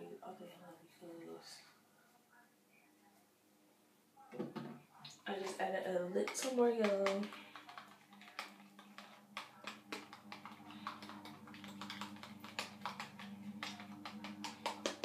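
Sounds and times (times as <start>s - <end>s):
mixing tool tapping container: 4.4s - 15.0s.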